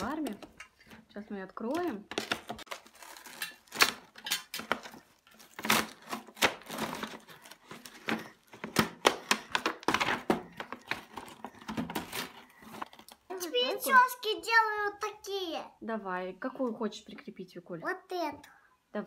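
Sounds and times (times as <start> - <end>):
plastic film crinkling: 1.6 - 13.4
cardboard box tearing: 2.5 - 4.1, 4.7 - 8.1.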